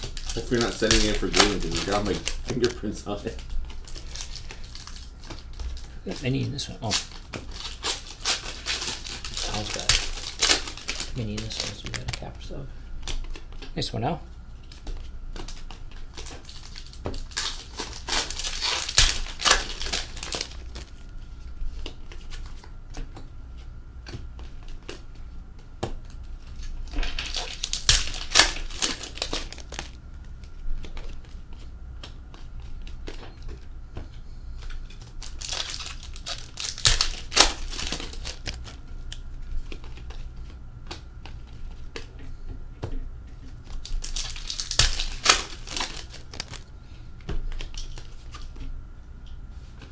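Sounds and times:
wrappers tearing and crinkling: 0.0 - 12.4, 15.4 - 21.2, 26.1 - 31.2, 34.6 - 40.2, 43.6 - 46.7, 47.4 - 48.5.

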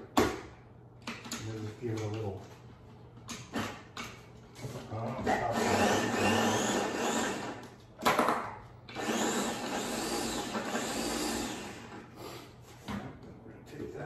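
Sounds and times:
food chopper running: 5.4 - 7.7, 8.9 - 12.0.

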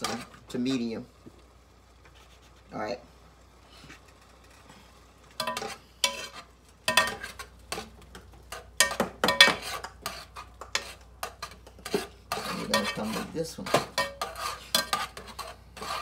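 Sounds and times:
spoon scraping and clinking pot: 5.4 - 16.0.

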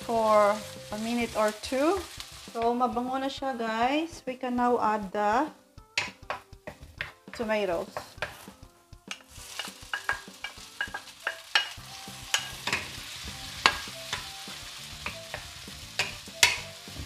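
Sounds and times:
tomatoes sizzling in hot oil: 0.0 - 17.0
wooden spatula knocking on pan: 6.0 - 8.5, 9.1 - 13.0, 13.6 - 14.2.

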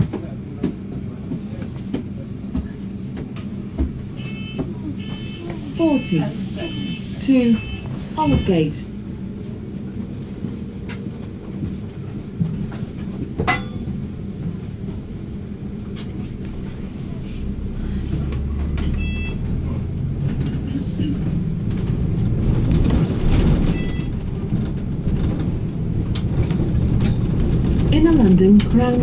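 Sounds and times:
bus engine and road rumble: 0.0 - 29.0
brief beeping tone: 18.9 - 19.4, 23.7 - 24.1.

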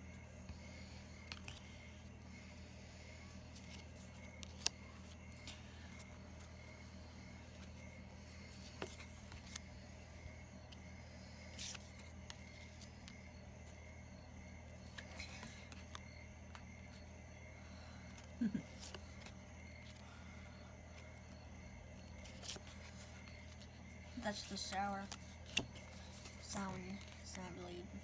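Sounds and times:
low background hum: 0.0 - 28.0
trading cards clicking and rustling: 3.5 - 6.7, 7.5 - 9.8, 14.8 - 16.7, 18.1 - 20.0, 22.1 - 23.7, 24.3 - 27.6.

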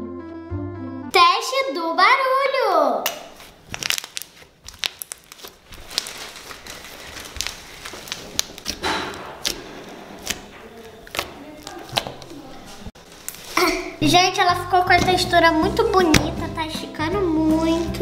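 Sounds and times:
slime squelching and popping: 3.1 - 12.4.

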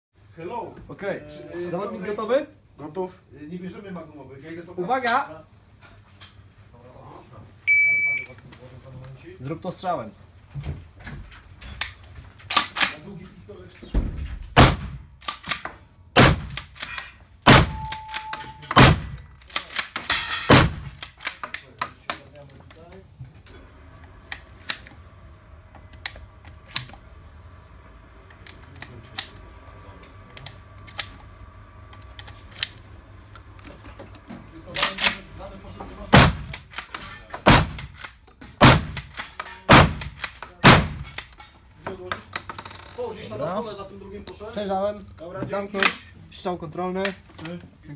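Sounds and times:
rifle shots with echo: 14.6 - 15.0, 16.2 - 16.6, 17.5 - 18.0, 18.8 - 19.2, 36.2 - 36.6, 39.7 - 41.1
rifle shots echoing indoors: 14.6 - 15.6, 16.2 - 19.9, 20.5 - 21.4, 36.1 - 36.8, 37.5 - 41.2
short ringing tone: 17.8 - 18.7.

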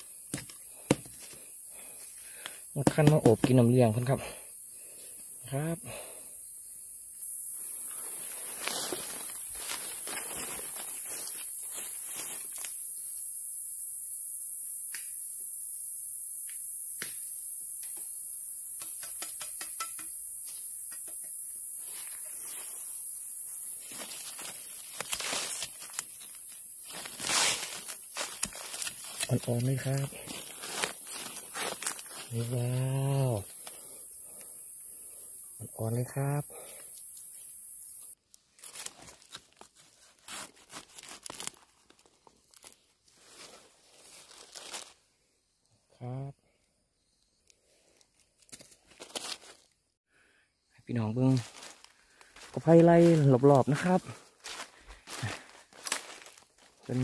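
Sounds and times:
steady high-pitched hiss: 0.0 - 38.2, 50.2 - 57.0
knife chopping bamboo: 2.8 - 3.6
dry leaves rustling: 7.6 - 12.8, 21.8 - 32.8, 38.3 - 45.0, 48.4 - 49.7, 51.4 - 53.2, 54.1 - 57.0.

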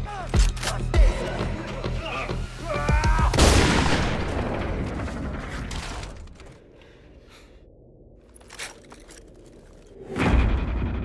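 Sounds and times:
deep boom: 10.1 - 11.0.

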